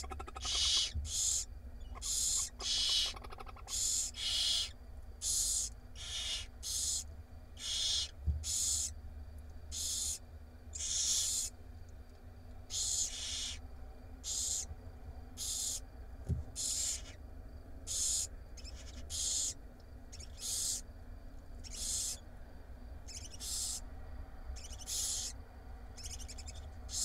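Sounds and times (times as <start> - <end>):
owls giving raspy hissing calls: 0.0 - 8.9, 9.7 - 10.2, 10.8 - 11.6, 12.7 - 13.6, 14.2 - 14.7, 15.4 - 15.8, 16.6 - 17.2, 17.9 - 19.6, 20.2 - 20.9, 21.6 - 22.2, 23.1 - 23.8, 24.6 - 25.4, 26.0 - 27.0
steady low hum: 0.0 - 27.0
soft thump: 16.2 - 16.5.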